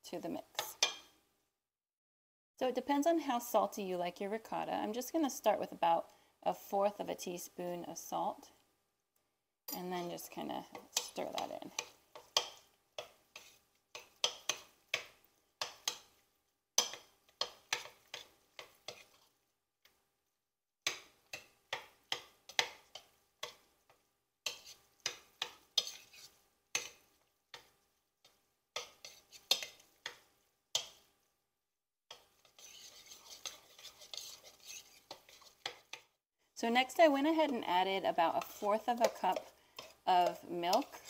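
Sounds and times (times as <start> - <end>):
metal spoon scraping ceramic bowl: 24.5 - 25.1, 25.8 - 26.9, 32.4 - 35.8.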